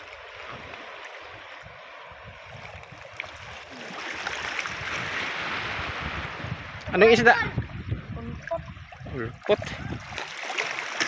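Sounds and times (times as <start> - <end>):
seawater sloshing among rocks: 0.0 - 6.6, 7.2 - 11.0.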